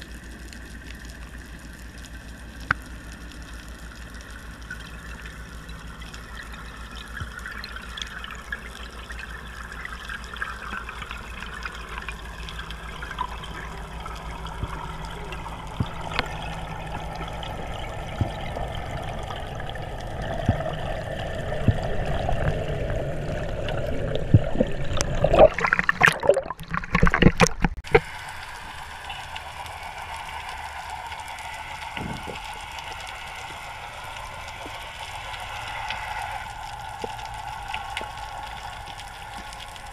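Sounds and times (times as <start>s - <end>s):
crackling burst of bubbles: 0.0s - 39.9s
underwater rush of water: 0.0s - 39.9s.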